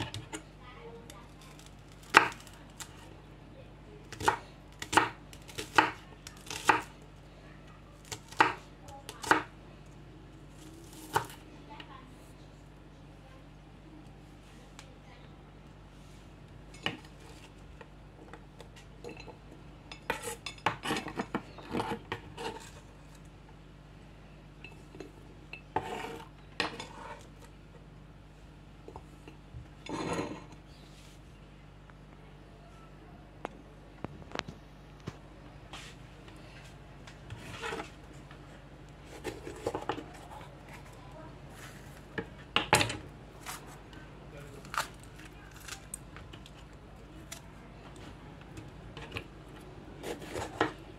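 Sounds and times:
faint steady hum: 0:00.0 - 0:50.9
knife on plastic cutting board: 0:25.8 - 0:27.2, 0:37.4 - 0:37.9
rubbing and scraping noises: 0:37.2 - 0:38.1
knife slicing bell pepper: 0:50.0 - 0:50.8.

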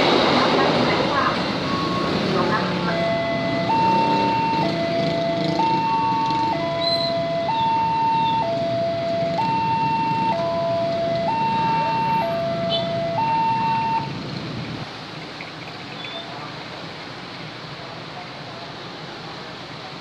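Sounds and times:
two-tone level crossing alarm: 0:01.3 - 0:14.1.

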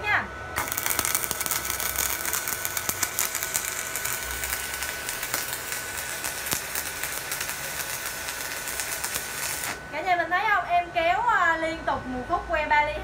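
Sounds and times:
welding arc crackling: 0:00.6 - 0:10.1.

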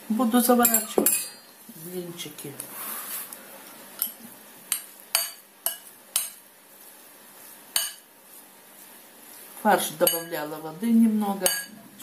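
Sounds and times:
metal spoon clinking on glass bowl: 0:00.6 - 0:01.5, 0:10.0 - 0:10.3, 0:11.4 - 0:11.8.

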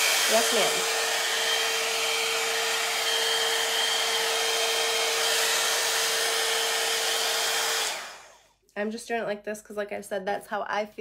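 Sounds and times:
hair dryer brush blowing air: 0:00.0 - 0:08.4.

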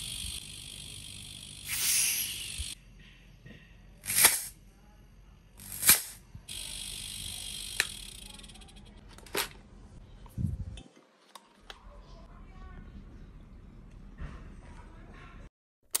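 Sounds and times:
compressed air hissing: 0:01.6 - 0:02.8, 0:04.0 - 0:04.5.

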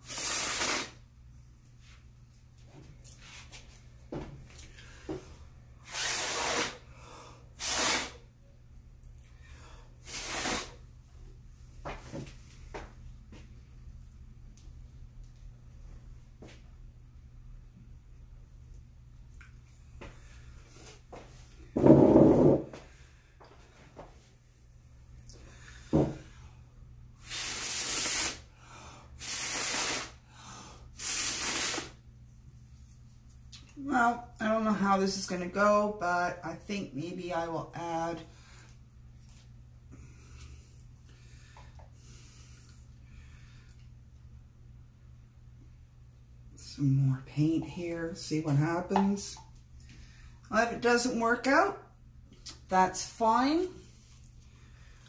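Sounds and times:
person blowing hard: 0:00.0 - 0:01.0, 0:05.8 - 0:06.9, 0:07.6 - 0:08.2, 0:10.0 - 0:10.8, 0:27.2 - 0:28.5, 0:29.2 - 0:30.2, 0:30.9 - 0:32.0.

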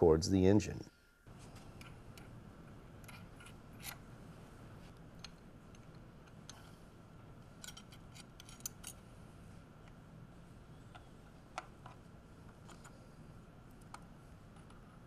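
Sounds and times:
small metallic clicks: 0:07.6 - 0:09.0.

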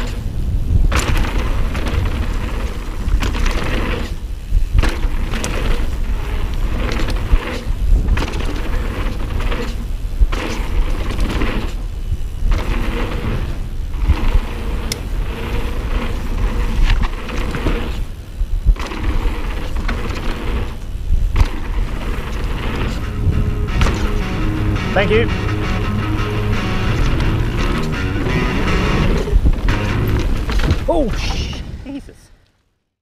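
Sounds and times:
wind rumbling on microphone: 0:00.0 - 0:32.5
bike tyres rolling on dirt: 0:00.0 - 0:32.8
sharp knocks from bike: 0:00.9 - 0:05.9, 0:06.7 - 0:11.8, 0:18.7 - 0:24.2, 0:29.1 - 0:31.6.

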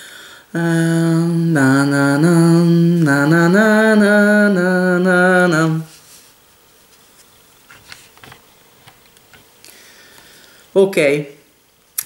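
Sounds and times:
person humming: 0:00.0 - 0:06.0.

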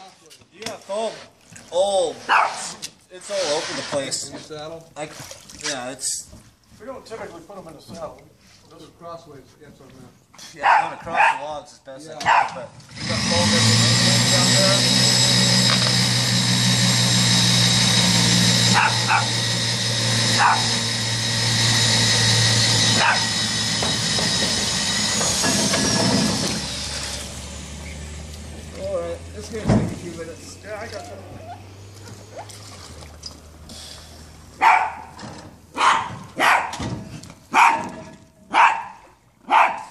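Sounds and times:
small dog yipping: 0:02.3 - 0:02.7, 0:20.4 - 0:20.6, 0:31.0 - 0:32.5, 0:34.6 - 0:35.2, 0:35.8 - 0:36.8, 0:37.6 - 0:39.9.

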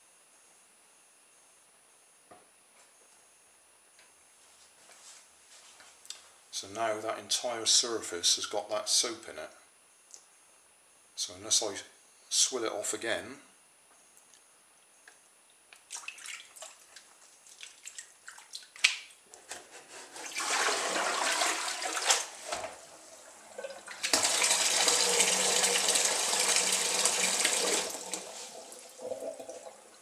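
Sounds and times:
water splashing: 0:15.9 - 0:19.0
kitchen tap running: 0:23.3 - 0:30.0
water pouring out of bowl: 0:23.5 - 0:30.0.

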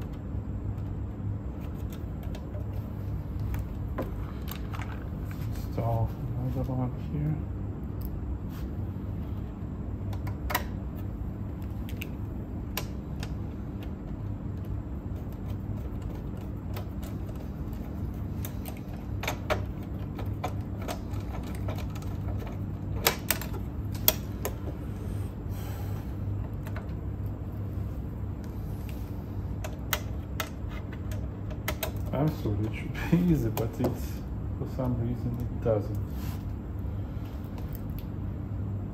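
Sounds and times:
steady low hum: 0:00.0 - 0:38.9.

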